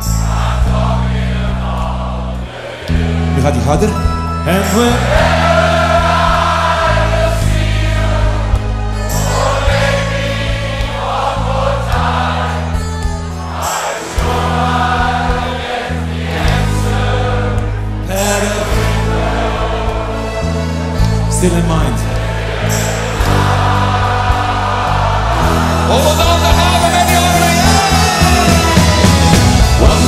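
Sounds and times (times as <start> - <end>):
crowd singing along: 0.0 - 30.0
live pop band playing: 2.8 - 30.0.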